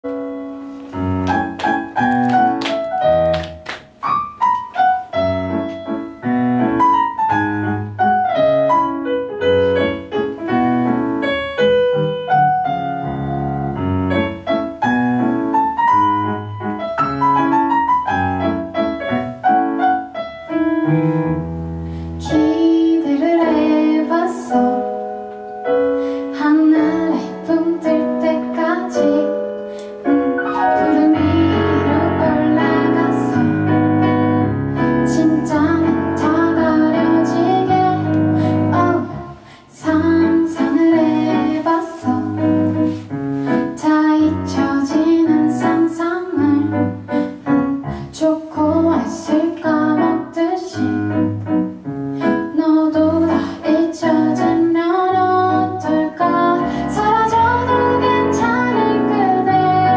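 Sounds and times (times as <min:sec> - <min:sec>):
solo piano playing: 0:00.0 - 0:59.9
woman singing: 0:22.2 - 0:25.0, 0:26.2 - 0:34.0, 0:35.0 - 0:42.6, 0:43.5 - 0:51.3, 0:52.3 - 0:59.9.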